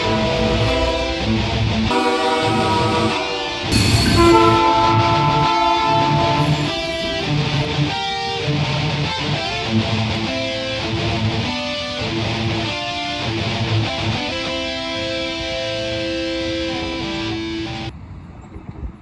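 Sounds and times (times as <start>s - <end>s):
rock music with electric guitar: 0.0s - 17.9s.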